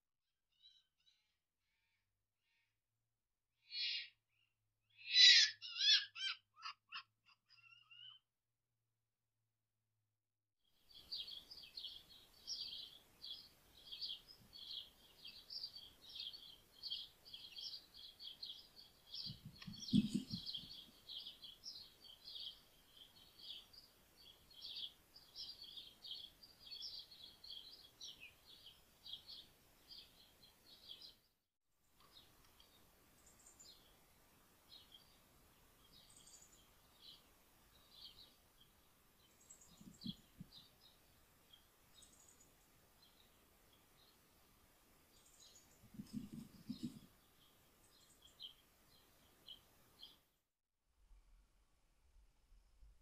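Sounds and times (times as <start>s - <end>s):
small birds chirping: 3.6s - 8.3s, 10.9s - 31.3s, 32.0s - 34.0s, 34.6s - 50.3s.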